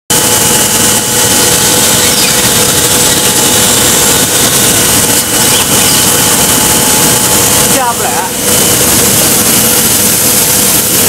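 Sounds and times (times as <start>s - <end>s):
industrial mixer running: 0.1s - 11.0s
steady whining tones: 0.1s - 11.0s
hiss: 8.6s - 11.0s.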